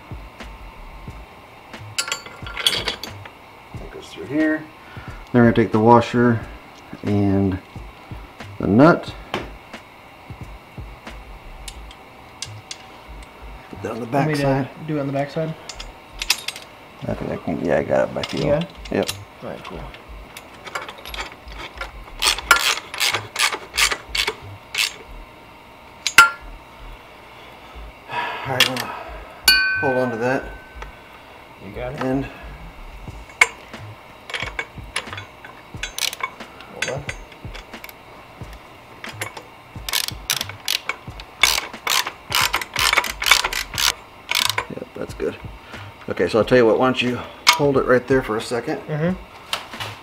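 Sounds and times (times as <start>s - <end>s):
metallic clack: 1.8s - 3.3s, 15.6s - 16.7s, 26.0s - 26.5s, 33.1s - 44.7s
ratchet wrench clicking: 1.8s - 3.3s, 11.1s - 13.3s, 15.6s - 16.7s, 18.2s - 25.2s, 26.0s - 26.6s, 32.9s - 44.8s.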